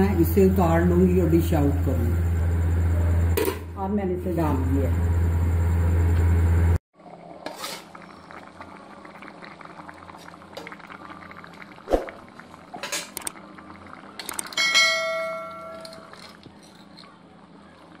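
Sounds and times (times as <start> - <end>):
low hum: 0.0 - 6.8
pot bubbling: 6.6 - 16.4.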